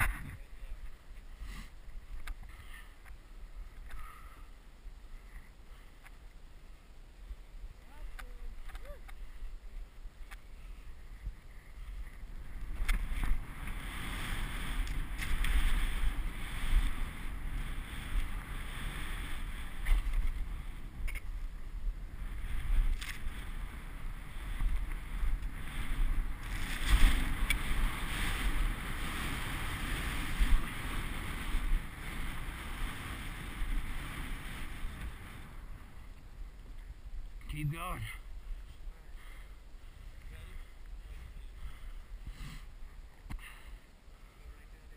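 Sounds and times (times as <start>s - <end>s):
wind buffeting microphone: 0.0s - 6.1s, 7.2s - 43.9s
skis swishing through snow: 21.8s - 35.8s.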